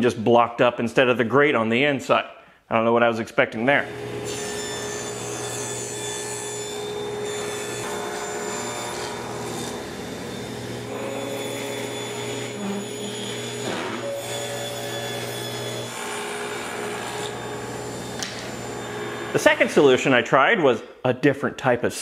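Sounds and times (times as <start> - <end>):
machinery motor humming and whining: 6.6 - 19.8.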